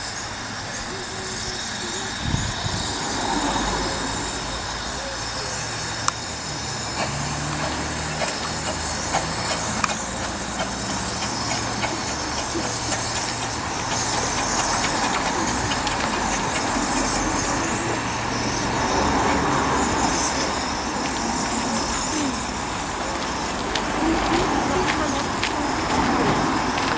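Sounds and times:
steam hissing: 0:00.0 - 0:26.9
steam locomotive running slowly: 0:00.0 - 0:26.9
wheels clicking over rail joints: 0:05.4 - 0:26.9.

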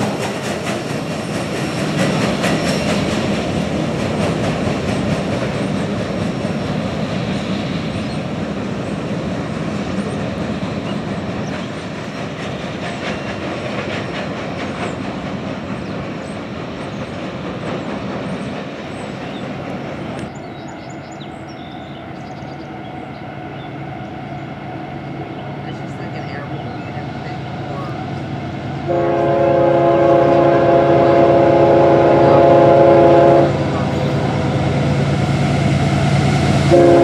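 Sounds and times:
train wheel clicks: 0:00.0 - 0:20.4
diesel locomotive drone: 0:00.0 - 0:37.0
freight train cars rumbling on rails: 0:00.0 - 0:37.0.

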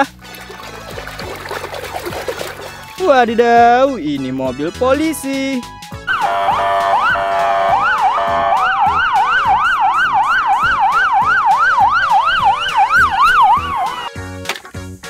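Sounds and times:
siren wailing: 0:06.1 - 0:14.1
siren yelping: 0:06.1 - 0:14.1.

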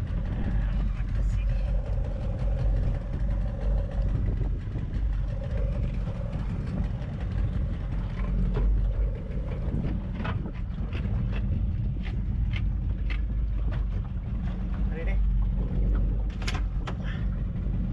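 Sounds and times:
boat low rumble: 0:00.0 - 0:17.9.

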